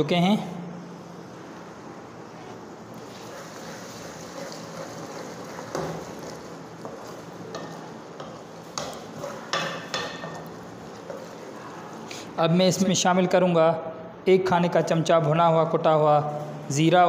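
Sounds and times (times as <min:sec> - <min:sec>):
low sizzle: 0:00.9 - 0:12.4.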